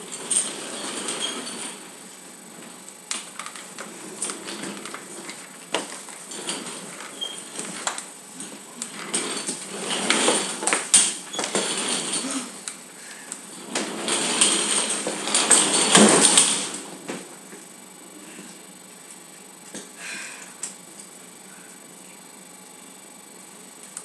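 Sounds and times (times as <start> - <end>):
armchair scraping across floor: 0.0 - 1.9, 3.5 - 17.4.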